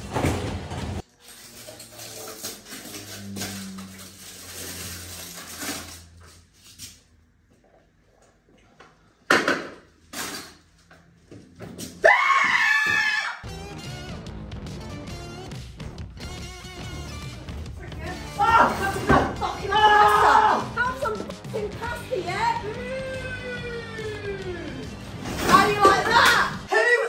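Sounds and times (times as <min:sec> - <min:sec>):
person screaming: 0:12.0 - 0:13.4, 0:18.4 - 0:20.8, 0:22.6 - 0:24.8
background music: 0:13.4 - 0:26.9.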